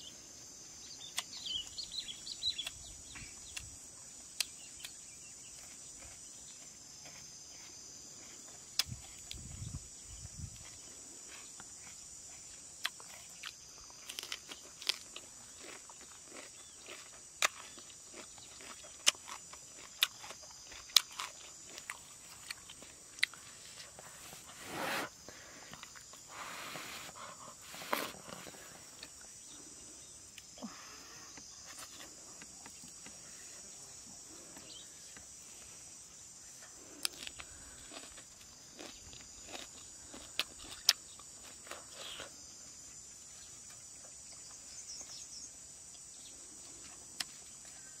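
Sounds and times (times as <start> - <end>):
insects droning: 0.0 - 48.0
crunching while eating: 0.9 - 48.0
rustling scrapes: 23.6 - 25.2, 26.3 - 28.8.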